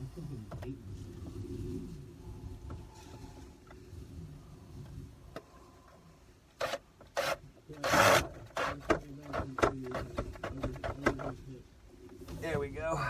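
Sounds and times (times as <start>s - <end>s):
hand tool scraping: 6.6s - 11.5s.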